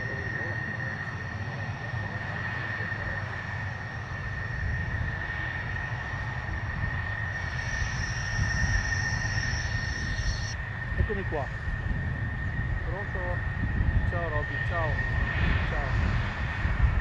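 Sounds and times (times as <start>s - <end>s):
jet engine high whine: 0.0s - 17.0s
jet engine low rumble: 0.0s - 17.0s
second higher whine: 6.1s - 11.4s.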